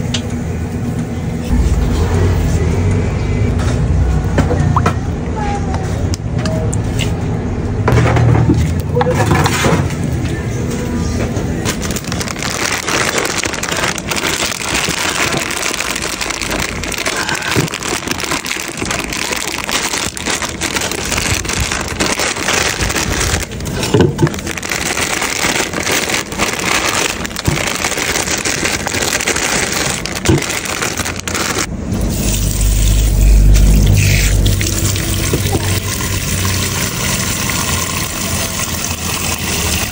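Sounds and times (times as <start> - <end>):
plastic bag crackling: 11.6 - 31.7
tap water running into a bowl: 34.4 - 39.9.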